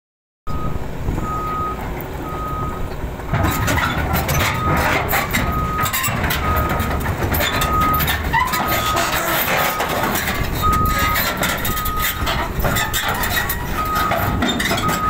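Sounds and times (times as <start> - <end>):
travel alarm beeping: 0.5 - 2.9, 4.6 - 4.9, 5.5 - 6.8, 7.6 - 10.0, 10.6 - 12.3, 13.8 - 15.0
excavator diesel engine running: 0.5 - 15.0
steel tracks clanking: 1.7 - 15.0.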